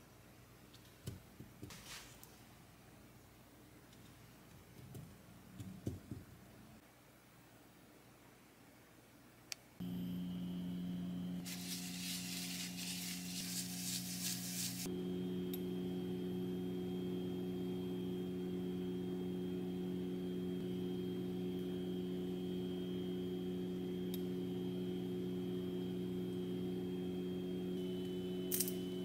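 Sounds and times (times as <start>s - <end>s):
faint high whine: 9.8s - 29.0s
induction cooktop humming: 9.8s - 29.0s.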